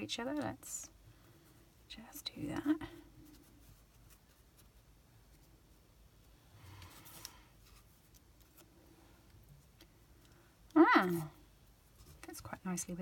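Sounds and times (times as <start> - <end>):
paper strips rustling: 6.9 - 10.4.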